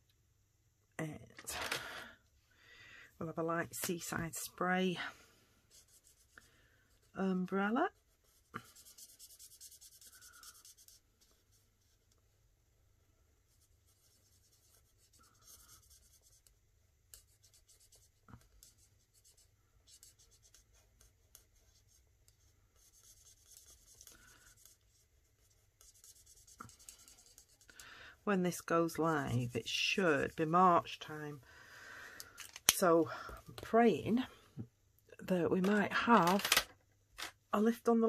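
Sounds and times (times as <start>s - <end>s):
marker scratching on cardstock: 5.7s - 6.4s, 7.9s - 12.0s, 13.5s - 16.5s, 17.1s - 27.7s.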